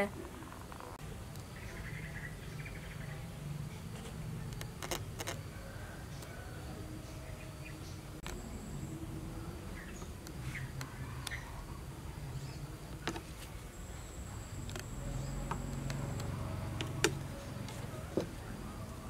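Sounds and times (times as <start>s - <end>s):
faint low hum: 0.0s - 19.0s
thin high whine: 0.0s - 19.0s.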